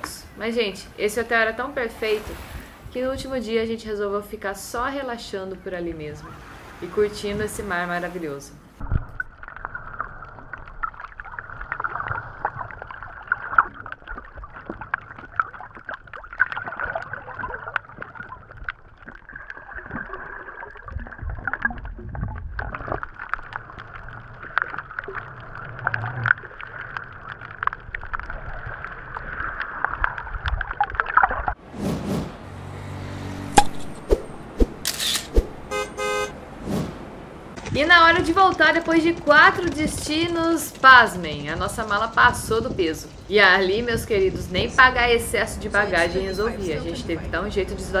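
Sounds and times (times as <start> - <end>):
underwater sloshing and gurgling: 8.7 - 32.4
small clicks and crackles: 9.0 - 31.6, 37.6 - 43.3.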